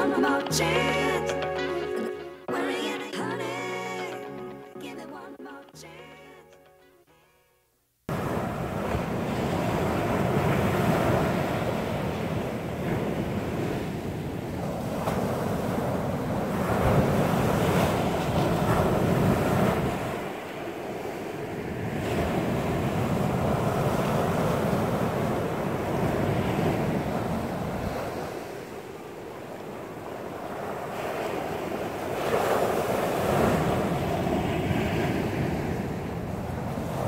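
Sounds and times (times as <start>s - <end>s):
ocean surf washing in: 8.1s - 37.0s.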